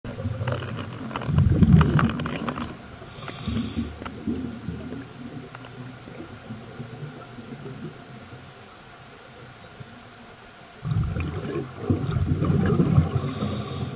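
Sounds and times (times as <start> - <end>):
underwater clicks: 0.1 - 4.4, 5.0 - 5.9
muffled underwater rumbling: 0.1 - 8.8, 10.8 - 13.9
brief hiss: 3.1 - 4.0, 13.1 - 13.9.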